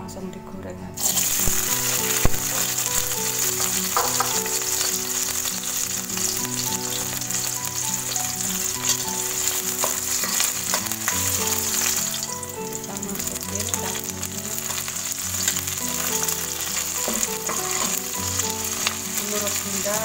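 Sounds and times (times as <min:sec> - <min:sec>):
soft background music: 0:00.0 - 0:20.0
garlic sizzling in hot oil: 0:01.0 - 0:20.0
spatula knocking against pan: 0:03.6 - 0:04.4.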